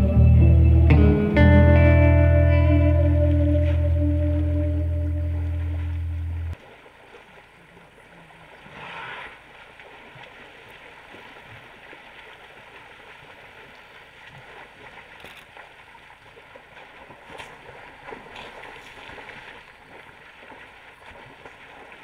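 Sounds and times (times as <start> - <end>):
music: 0.0 - 6.6
water splashing and trickling: 2.8 - 22.0.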